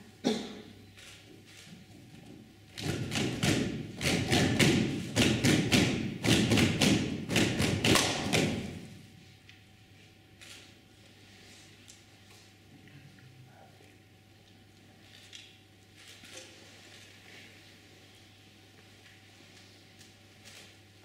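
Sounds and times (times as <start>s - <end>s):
hands beating on stage floor: 2.8s - 8.8s.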